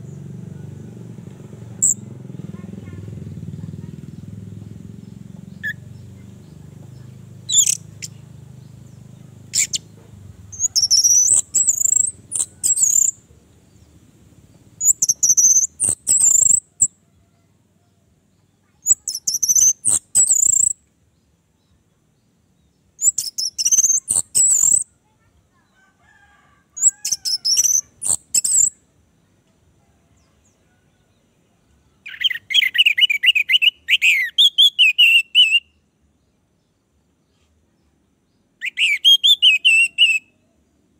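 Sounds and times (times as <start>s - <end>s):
bird call notes: 5.0s - 13.2s, 38.6s - 40.4s.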